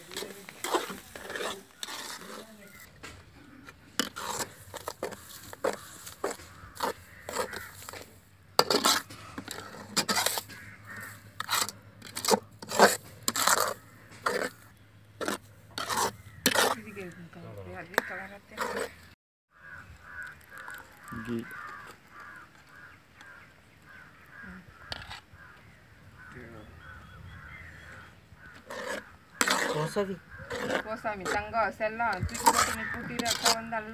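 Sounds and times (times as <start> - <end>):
metal ladle scraping a metal pot: 0.0 - 2.9, 4.0 - 17.1, 17.9 - 19.1, 28.5 - 33.9.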